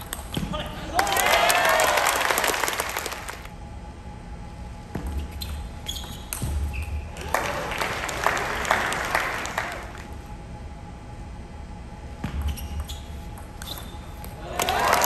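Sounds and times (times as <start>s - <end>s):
short high squeaks: 5.2s - 7.1s, 12.5s - 14.2s.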